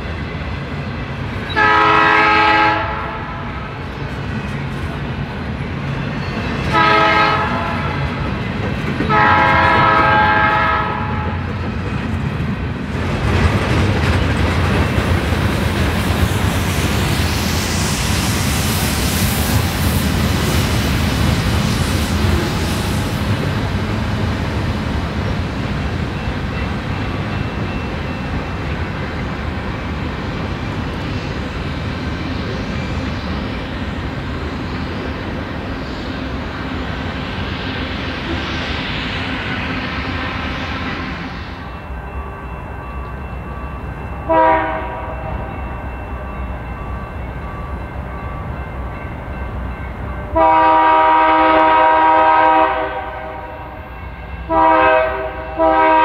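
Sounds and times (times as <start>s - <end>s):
hiss of train wheels: 0.0s - 56.0s
passing train rumble: 0.0s - 56.0s
locomotive air horn blasts: 1.5s - 3.6s, 6.7s - 8.0s, 9.1s - 11.4s, 44.3s - 45.3s, 50.4s - 53.8s, 54.5s - 56.0s.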